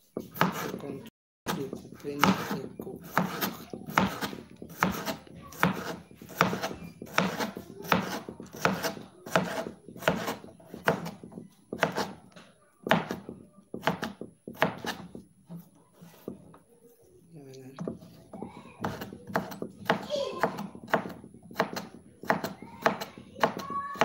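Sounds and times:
knife cutting on cutting board: 0:00.2 - 0:00.8, 0:01.5 - 0:12.2.

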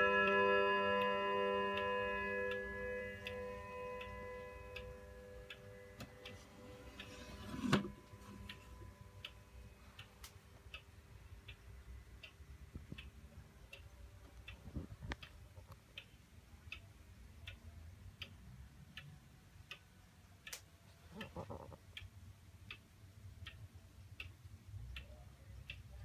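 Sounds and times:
clock chime ringing: 0:00.0 - 0:09.7
clock ticking: 0:00.0 - 0:26.0.

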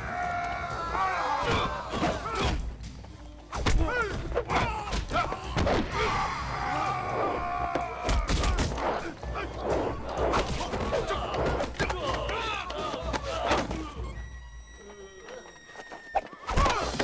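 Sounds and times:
fighters shouting: 0:00.0 - 0:02.7, 0:03.5 - 0:14.1
film music score: 0:00.0 - 0:17.0.

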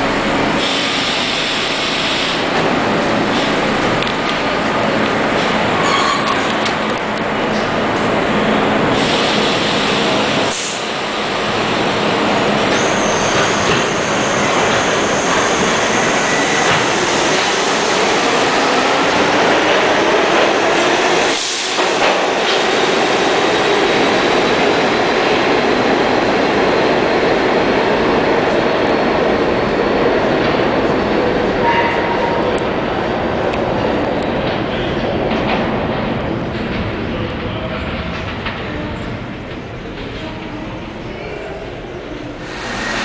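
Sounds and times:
subway train passing at speed: 0:00.0 - 0:43.0
steel wheels squealing: 0:05.8 - 0:06.6.

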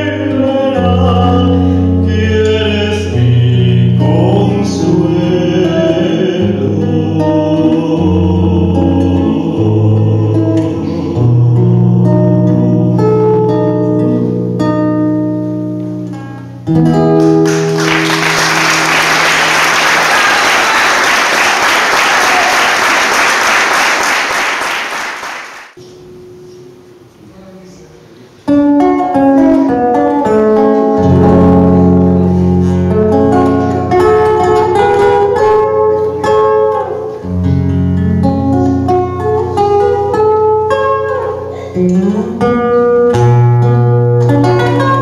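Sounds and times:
guitar plucking: 0:00.0 - 0:19.8, 0:28.5 - 0:45.0
guitar chord ringing: 0:03.1 - 0:19.7, 0:28.5 - 0:45.0
audience applauding: 0:17.2 - 0:25.8.

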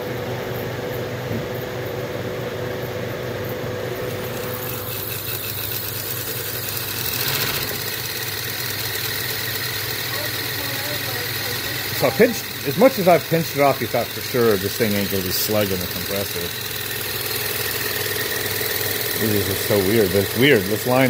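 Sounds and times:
compressor humming and vibrating: 0:00.0 - 0:21.0
mid-pitched whine: 0:00.0 - 0:21.0.

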